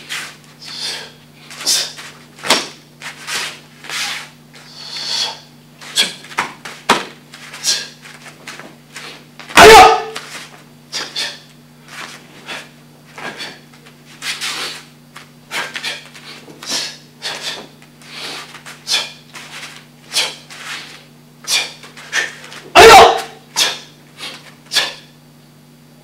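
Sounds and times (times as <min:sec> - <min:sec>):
bare feet on foam mats: 0:00.0 - 0:25.0
uniform swishes and snaps: 0:01.5 - 0:04.7, 0:05.8 - 0:25.0.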